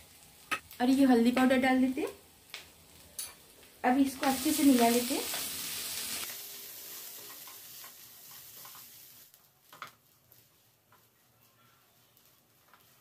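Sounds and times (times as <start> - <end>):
food sizzling in frying pan: 0.0 - 13.0
spoon tapping and scraping pan: 7.2 - 9.0.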